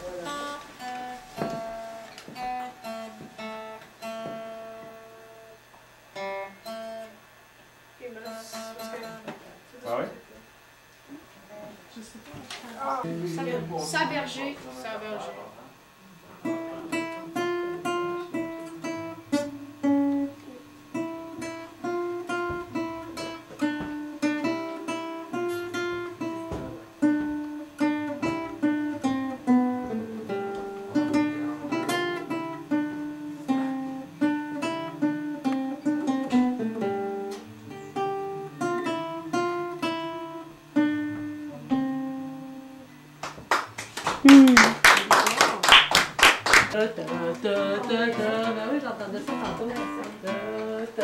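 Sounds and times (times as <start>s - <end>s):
classical guitar fingerpicked: 0.0s - 5.6s, 8.2s - 9.3s, 16.2s - 44.8s, 46.6s - 51.0s.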